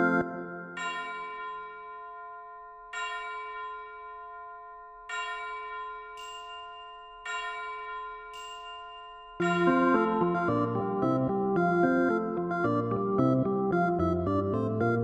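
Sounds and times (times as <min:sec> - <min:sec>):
bell-like chime chord: 0:00.0 - 0:11.3.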